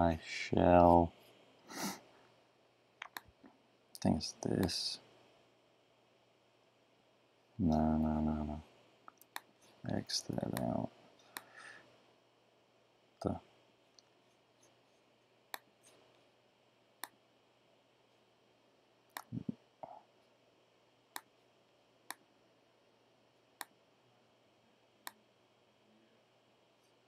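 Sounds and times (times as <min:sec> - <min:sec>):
computer mouse clicking: 0:03.0 - 0:03.3, 0:09.1 - 0:09.5, 0:10.5 - 0:10.7.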